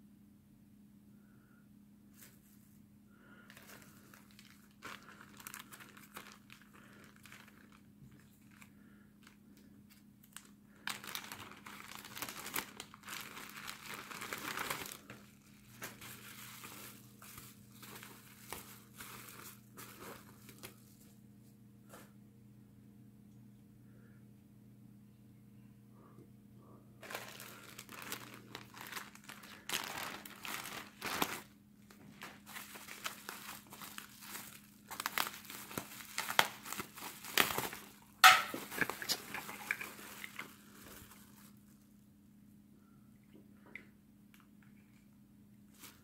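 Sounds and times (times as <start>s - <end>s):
faint low hum: 0.0s - 46.0s
plastic packaging crinkling: 3.3s - 21.1s, 27.0s - 41.8s, 45.7s - 46.0s.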